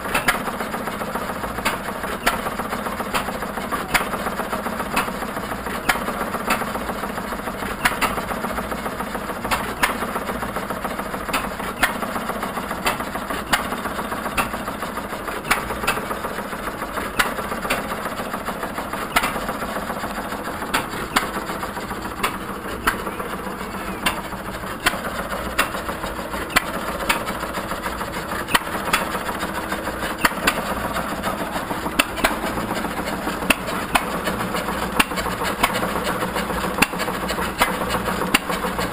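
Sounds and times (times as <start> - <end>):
engines firing with sharp pops: 0.0 - 38.9
ice cream freezers clattering: 0.0 - 38.9.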